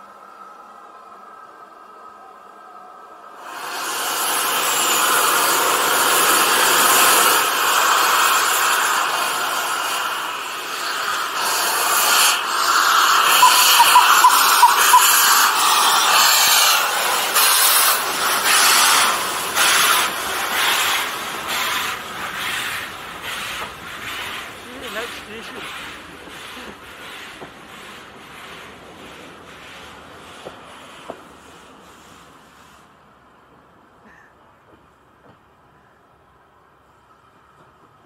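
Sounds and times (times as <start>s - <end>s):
steam hissing: 3.2s - 33.4s
steam locomotive exhaust chuffs: 3.3s - 38.0s.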